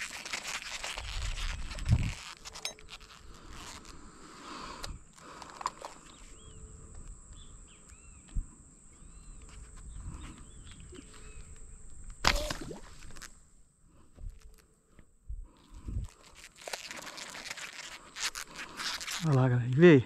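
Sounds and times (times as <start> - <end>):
faint bird chirps: 6.0 - 12.5.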